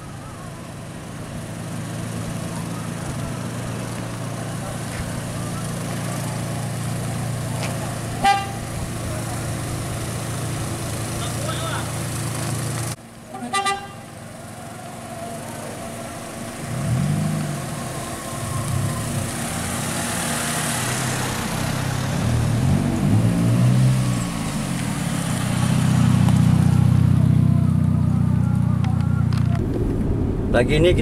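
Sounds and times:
car engines revving: 0:00.0 - 0:31.0
car horn toot: 0:08.2 - 0:08.7, 0:13.3 - 0:14.2.

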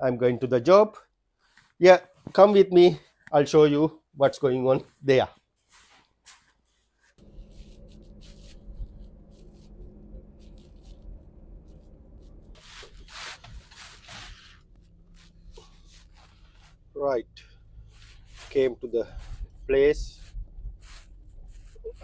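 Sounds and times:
engine and road hum: 0:07.2 - 0:22.0.

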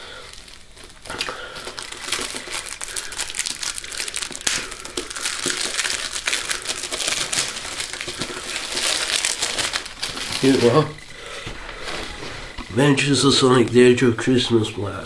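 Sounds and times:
wrapping paper tearing and crumpling: 0:00.0 - 0:11.0.

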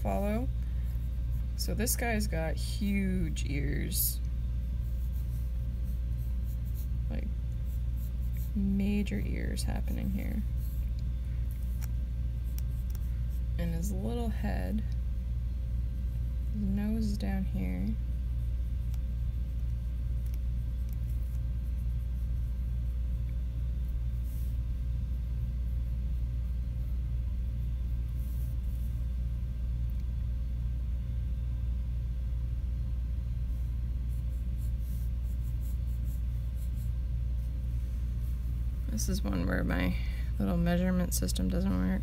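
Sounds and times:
pencil scratching on paper: 0:04.7 - 0:11.0, 0:11.6 - 0:14.5, 0:15.9 - 0:23.1, 0:33.5 - 0:37.6.

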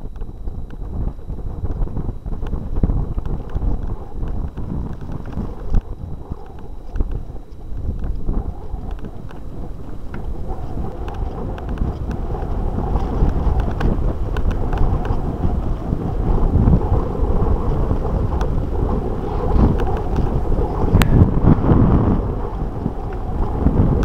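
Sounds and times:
wind rushing over microphone: 0:00.0 - 0:24.0
bike rattling over bumps: 0:00.3 - 0:24.0.

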